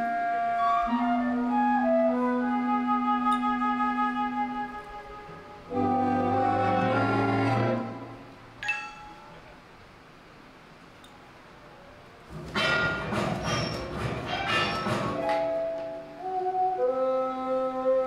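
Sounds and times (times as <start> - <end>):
slow orchestral music: 0.0 - 8.4, 14.9 - 18.0.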